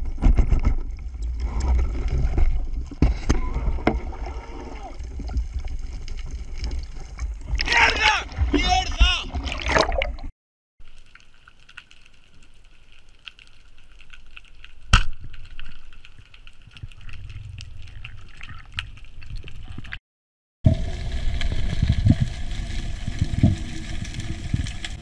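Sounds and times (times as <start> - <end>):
water rumbling past camera: 0.0 - 10.3, 20.7 - 25.0.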